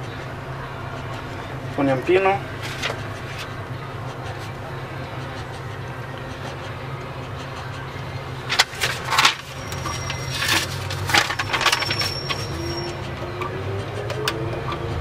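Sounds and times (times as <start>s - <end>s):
steady low hum: 0.0s - 11.7s.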